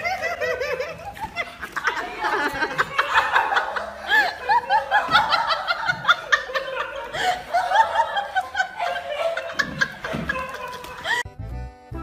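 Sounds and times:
person laughing: 0:00.0 - 0:11.3.

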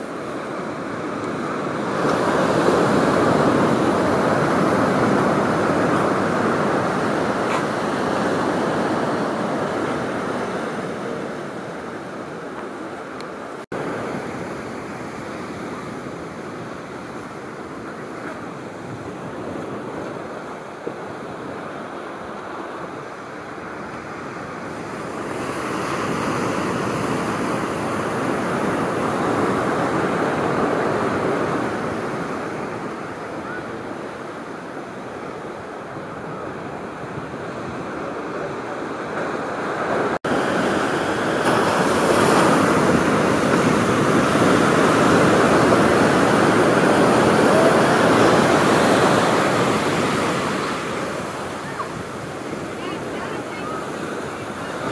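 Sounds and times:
surf breaking on a pebble beach: 0:40.3 - 0:54.9.

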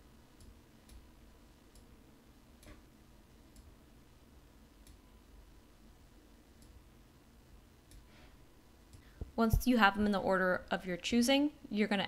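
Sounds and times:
low steady room hum: 0:00.0 - 0:12.0
computer mouse clicks: 0:07.9 - 0:08.1.

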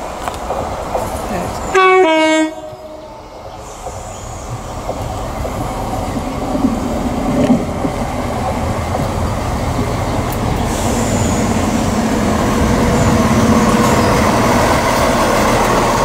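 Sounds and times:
train engine and wheel rumble: 0:00.0 - 0:16.0
two-tone train horn: 0:01.7 - 0:03.1.

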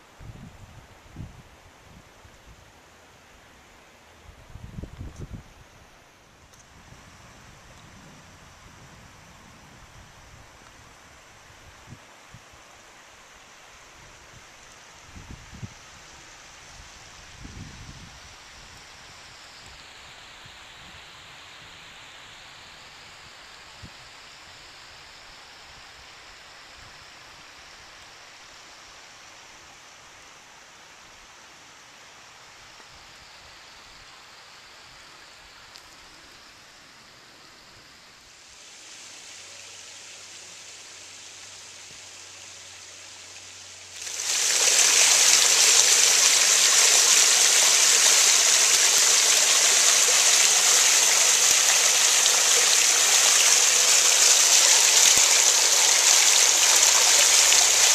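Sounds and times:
creek rushing: 0:38.1 - 0:57.9
water splashing over rock ledge: 0:43.9 - 0:57.9.

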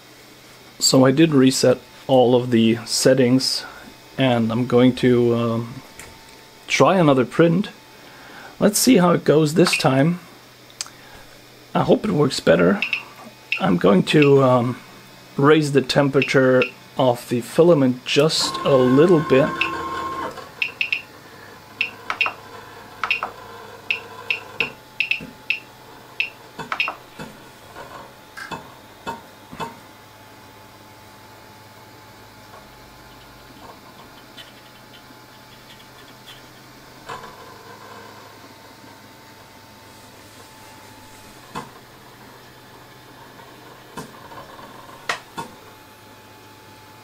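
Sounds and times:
cooling fans hissing: 0:00.0 - 0:47.0
printer low hum: 0:00.0 - 0:47.0
sharp clicks: 0:12.8 - 0:14.4, 0:20.6 - 0:21.1, 0:23.9 - 0:25.6
stepper motor chirps and clicks: 0:12.8 - 0:14.6, 0:16.1 - 0:16.8, 0:18.1 - 0:27.4, 0:32.9 - 0:37.0.

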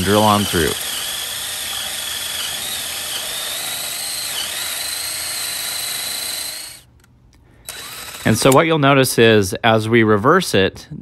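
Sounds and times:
hole saw rasping through wood: 0:00.0 - 0:06.8, 0:07.7 - 0:08.6
cordless drill motor whine: 0:00.0 - 0:06.9, 0:07.7 - 0:08.6.

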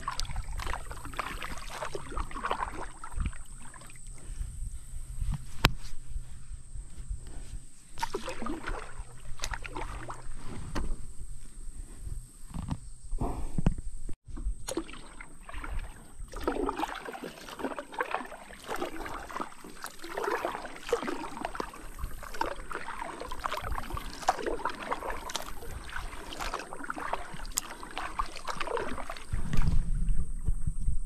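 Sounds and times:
water splashing from paddling: 0:00.0 - 0:04.4, 0:07.3 - 0:11.2, 0:14.3 - 0:30.0.

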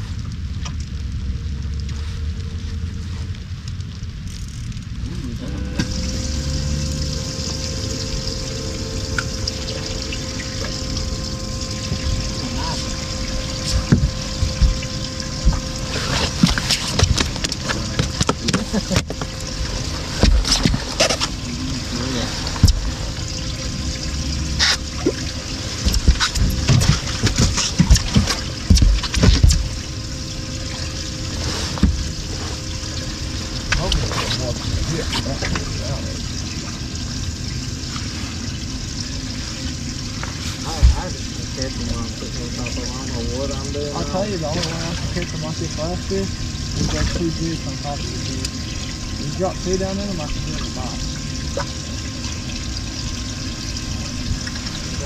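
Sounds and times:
electric water pump humming: 0:00.0 - 0:55.0
low rumble: 0:00.0 - 0:55.0
water rushing and splashing: 0:00.0 - 0:55.0
low thumps: 0:05.2 - 0:21.8.

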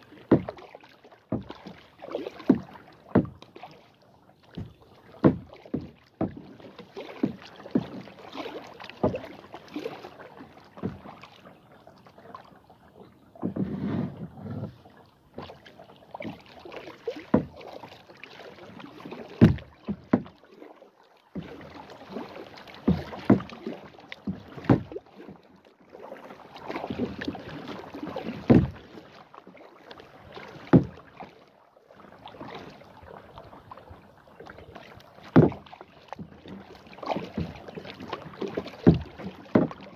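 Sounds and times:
paddle strokes splashing water: 0:00.0 - 0:39.9
knocks on plastic kayak: 0:00.3 - 0:00.6, 0:02.5 - 0:03.4, 0:04.6 - 0:06.5, 0:17.3 - 0:17.6, 0:19.4 - 0:20.3, 0:22.9 - 0:23.5, 0:24.6 - 0:25.0, 0:28.5 - 0:28.8, 0:30.7 - 0:31.0, 0:35.3 - 0:35.7, 0:38.8 - 0:39.8.

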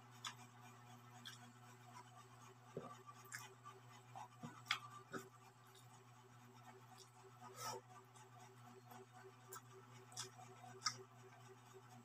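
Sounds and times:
soft chewing and mouth smacks: 0:00.0 - 0:07.3, 0:09.3 - 0:11.4
steady low hum: 0:00.0 - 0:12.0.

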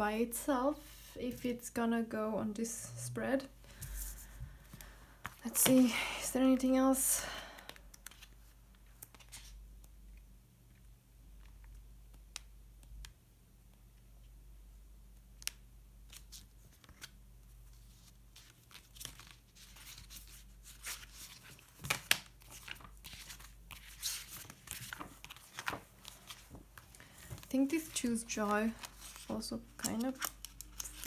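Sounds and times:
paper rustling and tearing: 0:17.8 - 0:31.0.

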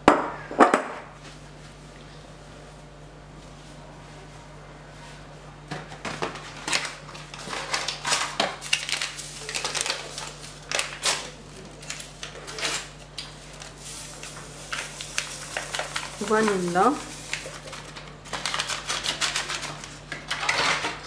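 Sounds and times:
paper sachets crinkling: 0:06.4 - 0:21.0.

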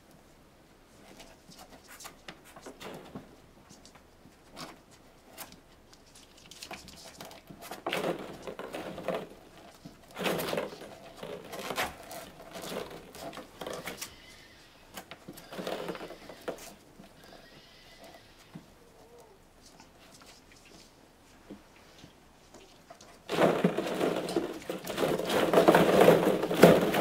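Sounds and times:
plastic balls clattering: 0:07.4 - 0:14.1, 0:15.1 - 0:16.7, 0:23.0 - 0:27.0.

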